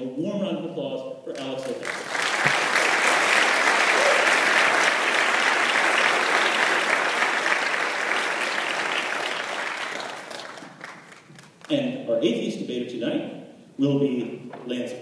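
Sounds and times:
audience applause: 0:01.4 - 0:11.7.

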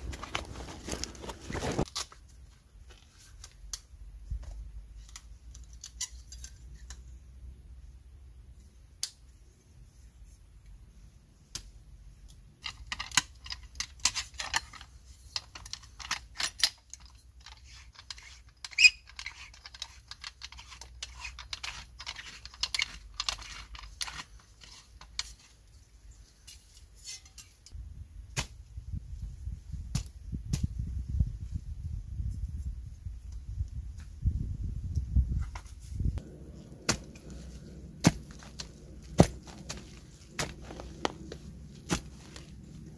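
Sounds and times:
low rumble: 0:36.0 - 0:42.9.

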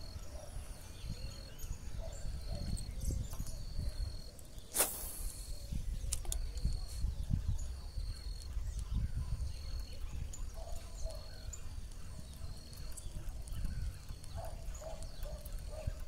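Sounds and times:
sharp clicks: 0:06.0 - 0:06.8.

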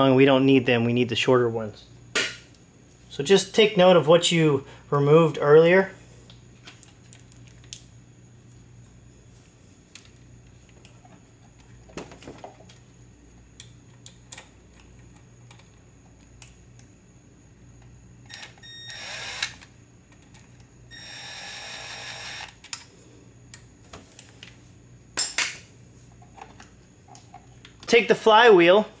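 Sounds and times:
cordless driver spinning: 0:18.9 - 0:19.5, 0:20.9 - 0:22.5.

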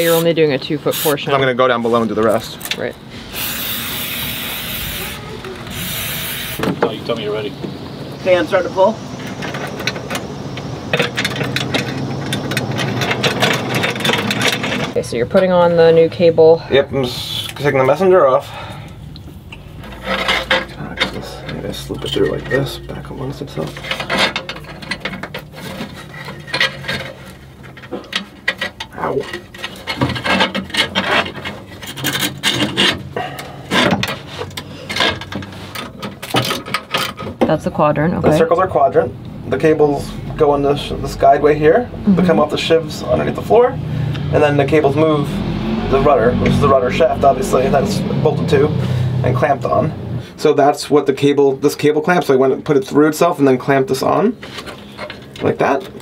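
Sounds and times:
wire cable scraping on metal: 0:00.9 - 0:07.5, 0:19.6 - 0:37.4, 0:54.3 - 0:56.0.

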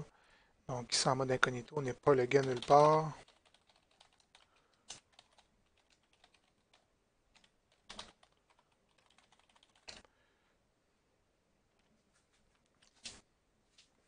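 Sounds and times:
keyboard typing: 0:02.1 - 0:10.1.

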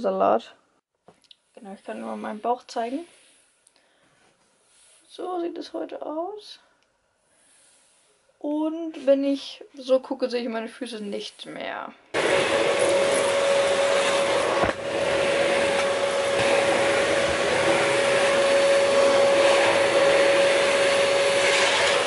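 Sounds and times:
vacuum cleaner running: 0:12.2 - 0:22.0.

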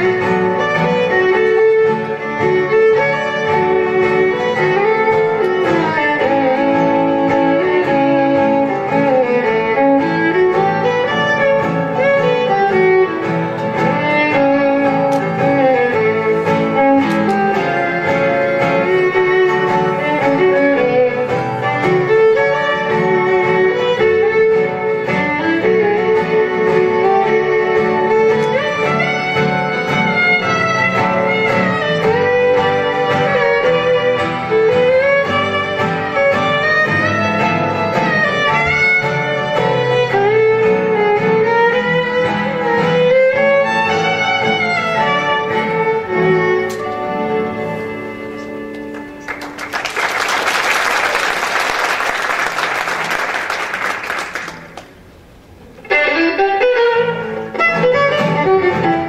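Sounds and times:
acoustic guitar accompaniment: 0:00.0 - 0:59.0
fiddle playing lively tune: 0:00.0 - 0:59.0
audience applause: 0:48.7 - 0:55.1.

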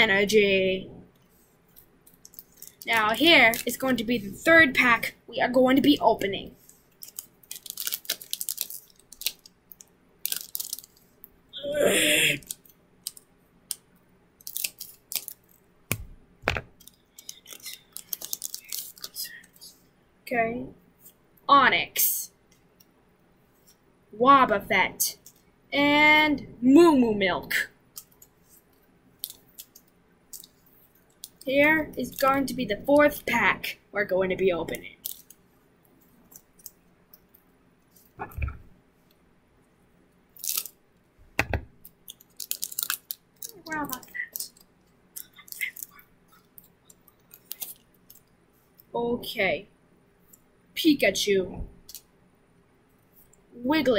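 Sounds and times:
small crackles and clicks: 0:01.1 - 0:04.0, 0:05.8 - 0:11.4, 0:12.4 - 0:15.7, 0:16.7 - 0:19.8, 0:25.1 - 0:25.5, 0:27.9 - 0:32.4, 0:34.7 - 0:38.5, 0:40.4 - 0:41.1, 0:41.8 - 0:48.9, 0:51.8 - 0:52.1
foil wrapper crinkling: 0:02.1 - 0:03.9, 0:06.9 - 0:11.1, 0:14.4 - 0:15.6, 0:16.8 - 0:19.4, 0:29.2 - 0:30.6, 0:35.0 - 0:35.4, 0:40.4 - 0:40.8, 0:41.8 - 0:44.6, 0:45.2 - 0:48.3.

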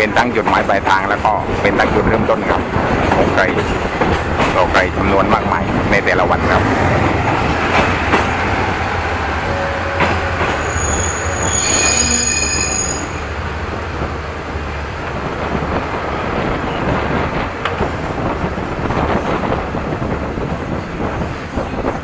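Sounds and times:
train wheels rumbling on rails: 0:00.0 - 0:22.0
high wheel squeal: 0:09.5 - 0:13.2.

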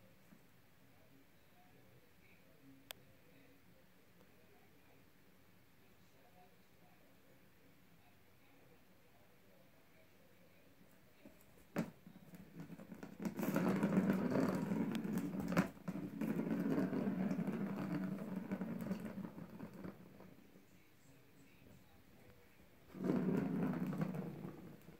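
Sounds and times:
plastic ball rolling around track: 0:11.7 - 0:20.4, 0:22.8 - 0:24.9.

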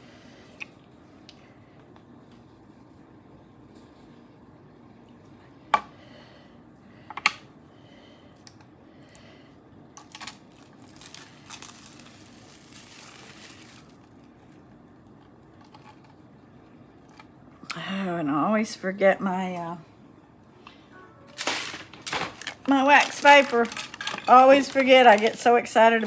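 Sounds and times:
plastic cling wrap crinkling: 0:10.0 - 0:14.8, 0:21.3 - 0:26.0.

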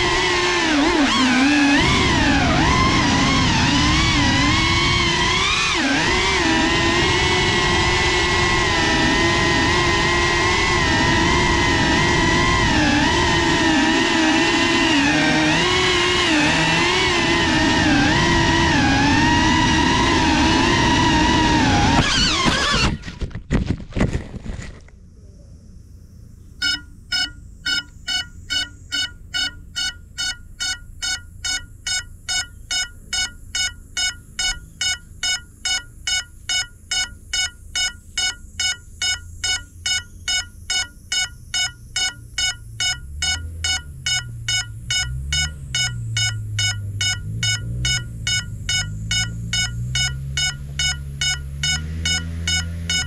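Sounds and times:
high electronic beeping: 0:26.5 - 0:53.0.

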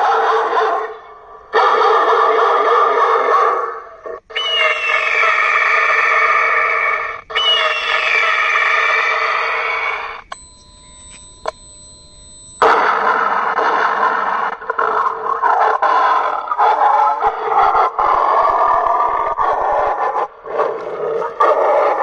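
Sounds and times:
recorded animal cries from loudspeakers: 0:00.0 - 0:10.3, 0:13.3 - 0:22.0
faint electronic tone: 0:10.2 - 0:13.4.

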